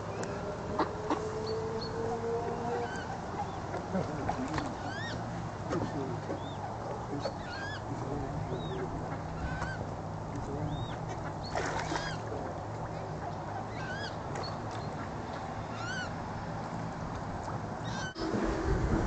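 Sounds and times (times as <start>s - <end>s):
ducks peeping: 0.0s - 18.4s
low hum: 12.2s - 19.0s.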